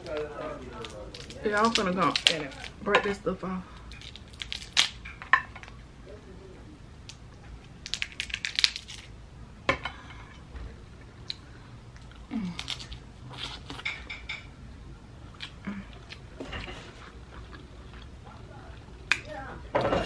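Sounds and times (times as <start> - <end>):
shellfish shells cracking: 0.0 - 2.8, 3.8 - 5.8, 7.1 - 9.1, 12.0 - 13.0.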